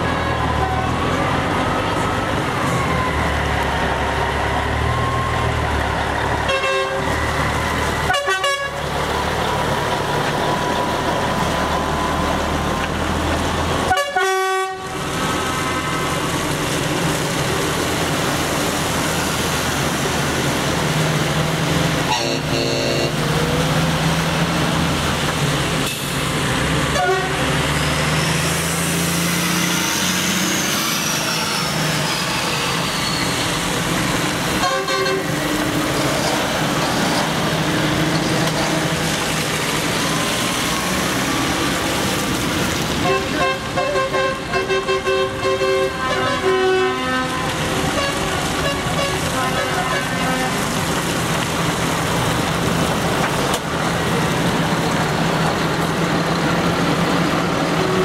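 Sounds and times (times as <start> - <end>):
diesel lorry engines: 0.0 - 58.0
tyres hissing on wet tarmac: 0.4 - 58.0
truck horn blasts: 6.5 - 7.1, 8.1 - 8.8, 13.9 - 15.0, 22.0 - 23.3, 26.9 - 27.4, 34.6 - 35.3, 43.0 - 50.7.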